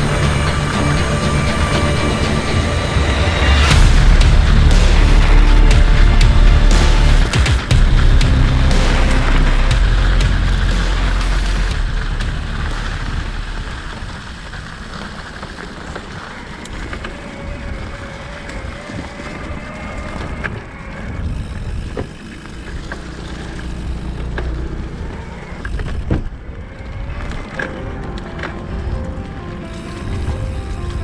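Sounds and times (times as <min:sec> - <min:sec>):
tyres rolling over leaves: 0:00.0 - 0:31.0
bike clicks and rattles: 0:10.1 - 0:31.0.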